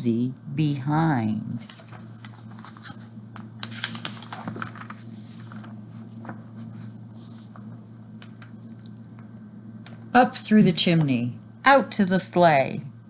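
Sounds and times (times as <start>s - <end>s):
steady low hum: 0.0s - 13.0s
book pages rustling: 1.6s - 8.9s.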